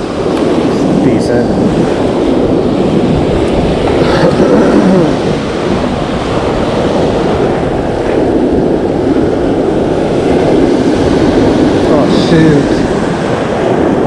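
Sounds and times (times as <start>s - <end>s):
ocean surf breaking: 0.0s - 14.0s
wind buffeting microphone: 0.0s - 14.0s.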